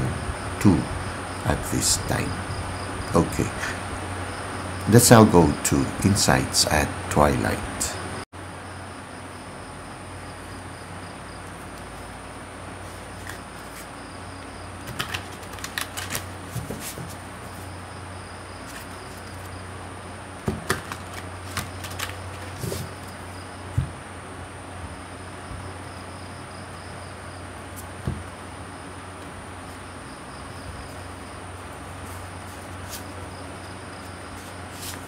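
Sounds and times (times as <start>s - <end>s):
low hum and hiss: 0.0s - 35.0s
cards being shuffled: 12.8s - 13.9s, 14.8s - 17.2s, 18.6s - 19.5s, 20.5s - 23.1s, 32.1s - 33.1s, 34.4s - 35.0s.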